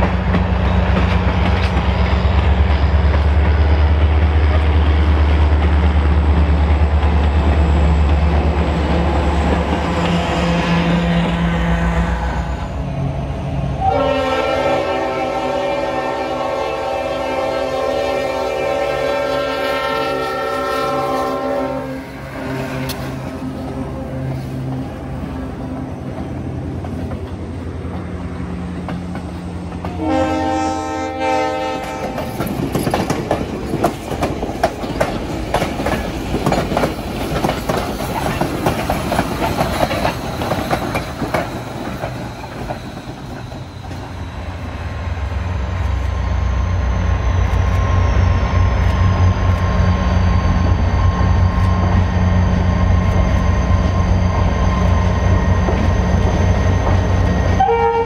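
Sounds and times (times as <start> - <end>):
train wheel clatter: 0.0 - 10.2, 25.6 - 30.0, 31.8 - 57.7
diesel locomotive engines: 0.0 - 58.0
train horn: 9.8 - 12.6, 13.8 - 24.5, 29.9 - 32.4, 57.5 - 58.0.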